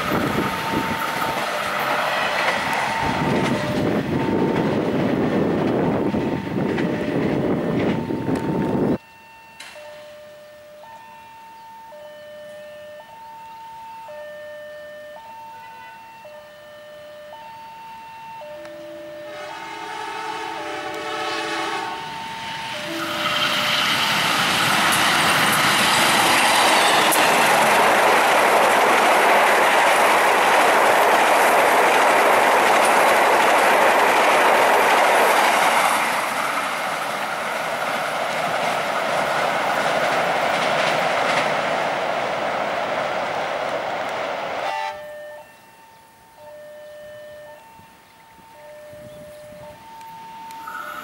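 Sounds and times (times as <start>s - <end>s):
train wheels clattering on rails: 0.0s - 9.0s, 19.3s - 44.7s
train horn: 15.0s - 16.6s, 18.5s - 23.9s, 44.6s - 47.9s.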